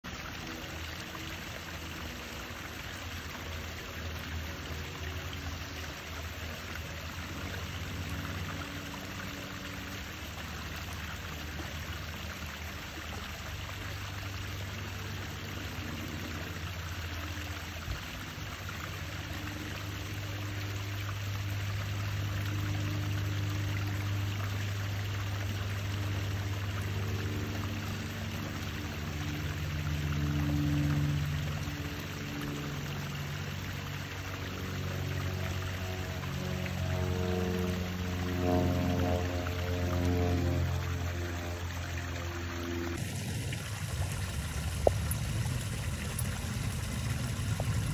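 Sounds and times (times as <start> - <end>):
low hum: 0.0 - 47.9
water trickling in pond: 0.0 - 47.9.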